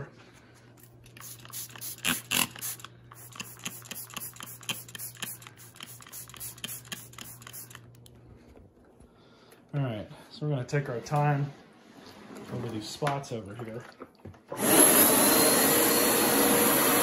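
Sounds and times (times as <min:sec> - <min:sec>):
spray bottle spritzes: 0:00.8 - 0:07.8.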